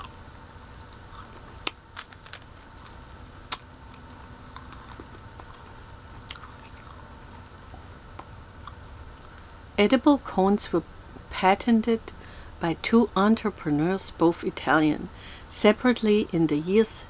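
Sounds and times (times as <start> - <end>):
waffle cone crunching: 0.0 - 7.6.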